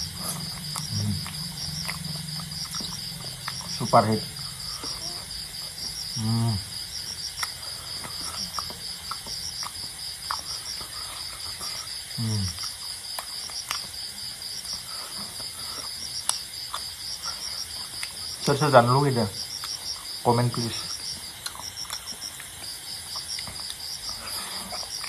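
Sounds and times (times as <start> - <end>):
crickets chirping: 0.0 - 25.0
person humming: 0.1 - 1.4, 6.2 - 6.7, 12.2 - 12.6
faint eating clicks: 7.1 - 14.0, 19.4 - 25.0.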